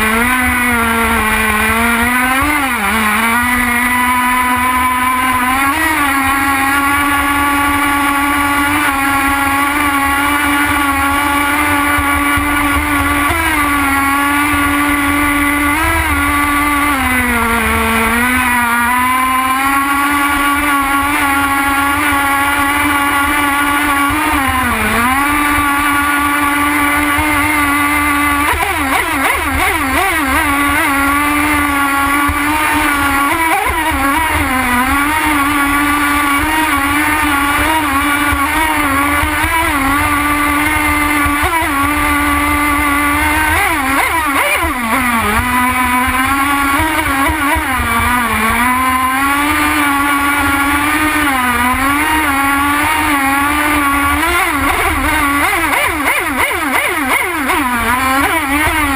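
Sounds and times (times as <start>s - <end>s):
model boat engine at high revs: 0.0s - 58.9s.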